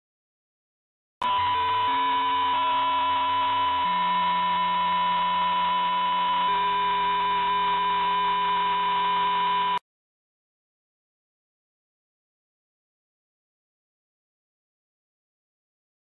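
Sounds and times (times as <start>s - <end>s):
loud steady high tone: 1.2s - 9.8s
stacked electronic tones: 1.2s - 9.8s.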